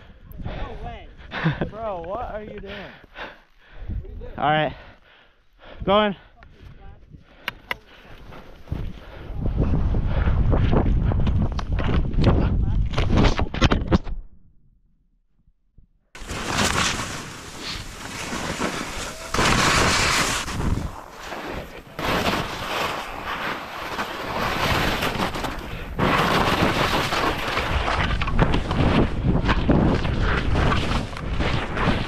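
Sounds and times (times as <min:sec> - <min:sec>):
wind buffeting microphone: 0:08.2 - 0:13.2, 0:17.8 - 0:23.5
skis sliding through snow: 0:16.2 - 0:32.0.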